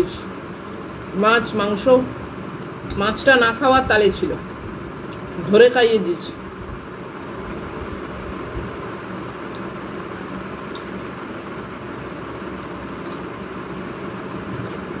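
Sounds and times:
room noise hum and hiss: 0:00.0 - 0:15.0
faint eating clicks: 0:10.6 - 0:11.0, 0:13.0 - 0:13.3.

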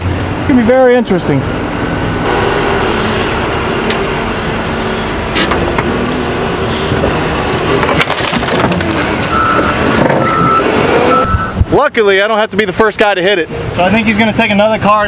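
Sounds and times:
diesel engine under load: 0:00.0 - 0:15.0
reversing alarm beeping: 0:02.0 - 0:03.8, 0:09.3 - 0:11.6.

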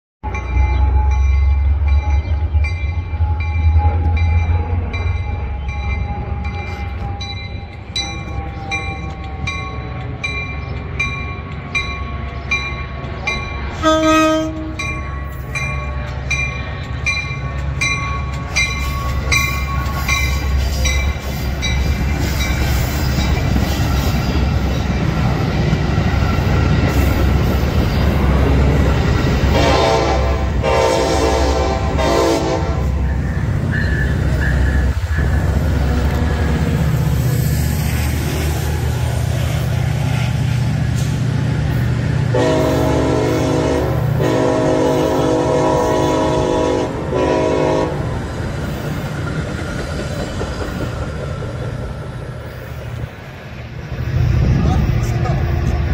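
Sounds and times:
crossing warning bells ringing: 0:00.2 - 0:52.0
diesel train rumbling past: 0:00.2 - 0:55.9
train horn blast: 0:13.8 - 0:15.0, 0:29.4 - 0:36.7, 0:42.3 - 0:48.1.

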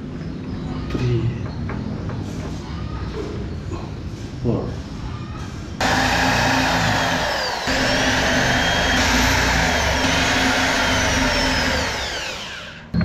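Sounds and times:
electric drill whining: 0:05.8 - 0:13.0.

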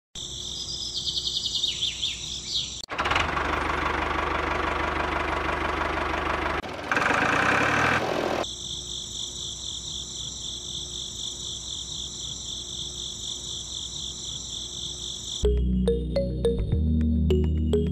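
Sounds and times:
bird chirps: 0:00.2 - 0:02.9
tractor engine running: 0:02.9 - 0:08.5
crickets chirping: 0:08.4 - 0:15.4.

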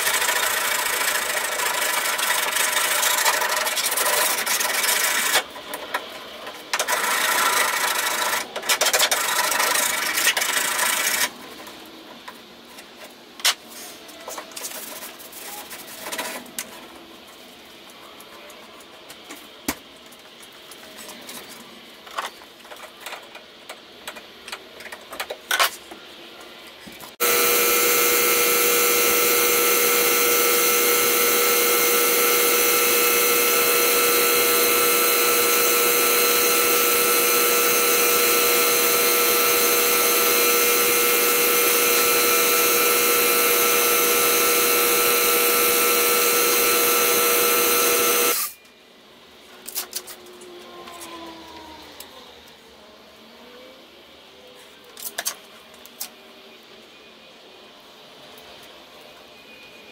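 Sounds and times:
motor-driven power tool running: 0:00.0 - 0:05.4, 0:27.2 - 0:48.5.

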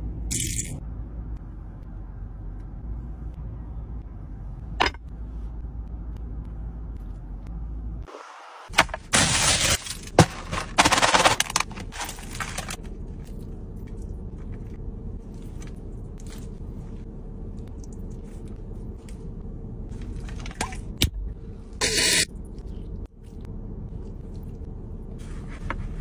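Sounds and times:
low steady hum: 0:00.0 - 0:08.1, 0:08.7 - 0:26.0
aluminium foil crinkling: 0:09.2 - 0:12.8.

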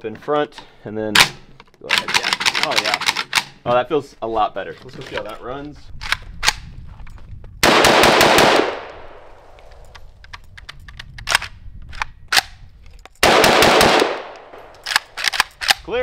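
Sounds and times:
rifle gunshots: 0:07.6 - 0:09.4, 0:13.2 - 0:15.4.

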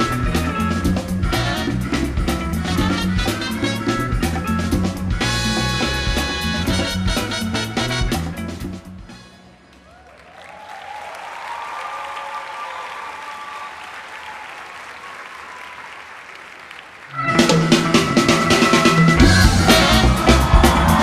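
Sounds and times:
music: 0:00.0 - 0:09.7, 0:17.1 - 0:21.0
people cheering: 0:09.5 - 0:21.0
audience applauding: 0:09.6 - 0:21.0.

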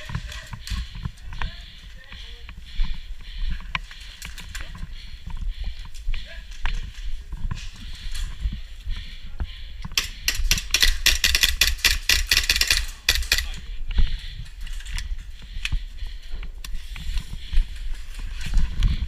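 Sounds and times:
airsoft pistols firing: 0:10.0 - 0:13.6.

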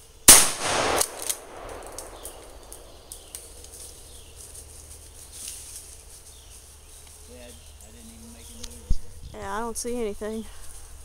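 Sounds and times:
loud gunshot: 0:00.3 - 0:03.3.

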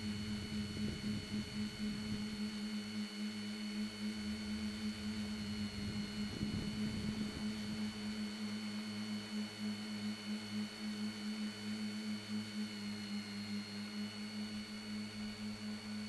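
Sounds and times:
thin high whine: 0:00.0 - 0:10.9.

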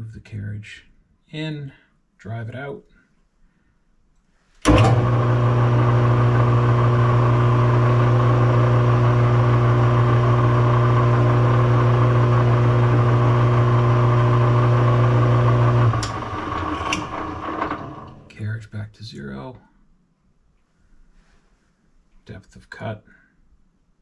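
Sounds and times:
metal lathe humming: 0:04.7 - 0:18.3.

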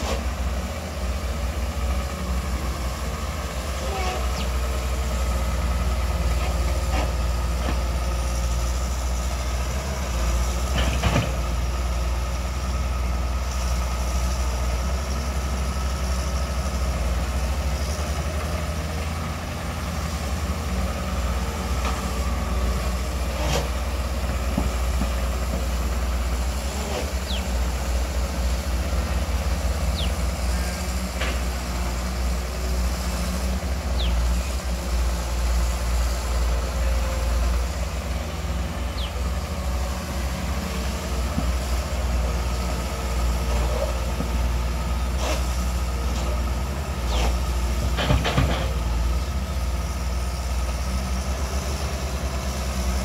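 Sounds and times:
excavator diesel engine droning: 0:00.0 - 0:53.0.

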